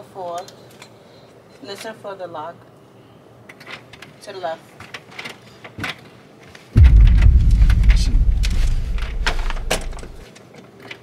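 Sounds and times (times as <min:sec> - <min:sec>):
loud low rumble: 0:06.8 - 0:10.2.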